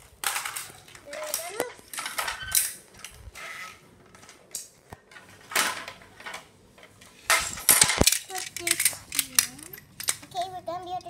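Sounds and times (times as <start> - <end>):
plastic track pieces scraping on tiles: 0.2 - 6.4.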